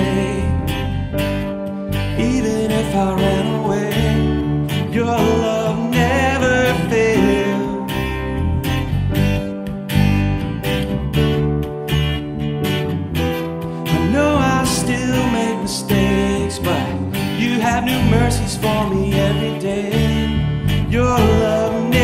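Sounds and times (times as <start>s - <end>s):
man singing: 0.0s - 0.9s, 2.0s - 8.6s, 13.8s - 22.0s
strummed acoustic guitar: 0.0s - 22.0s.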